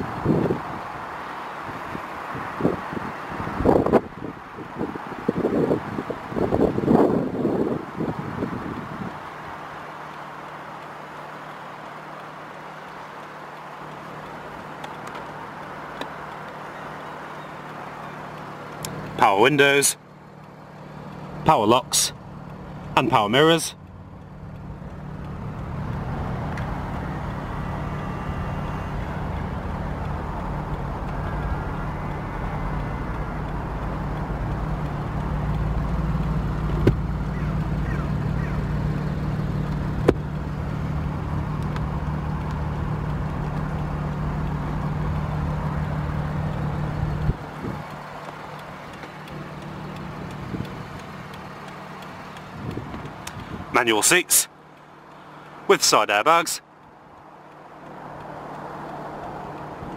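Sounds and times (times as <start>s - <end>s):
vehicle engine idling: 0.0s - 59.9s
sharp clicks: 10.1s - 19.2s, 23.8s - 59.9s.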